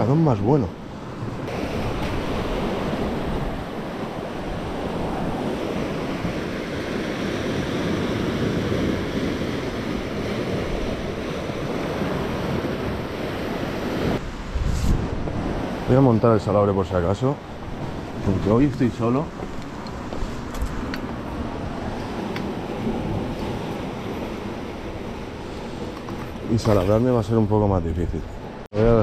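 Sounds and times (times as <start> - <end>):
sea surf washing against shore: 0.0 - 29.0
wind on microphone: 1.0 - 27.2.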